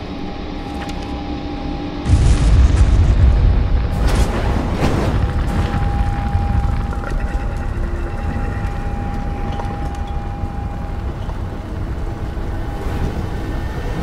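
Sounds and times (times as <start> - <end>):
large fire rumbling: 2.0 - 14.0
high ringing tone: 5.5 - 12.6.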